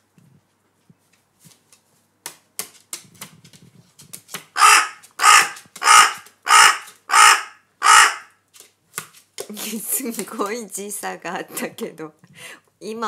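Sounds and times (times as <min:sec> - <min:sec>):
faint tapping and rustling: 0:00.1 - 0:07.0
crow cawing: 0:04.6 - 0:08.4.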